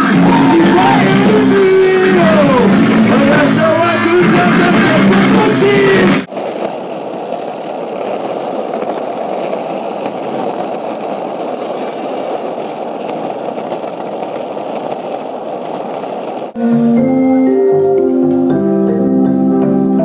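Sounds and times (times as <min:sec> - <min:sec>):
rushing road noise: 0:00.0 - 0:20.0.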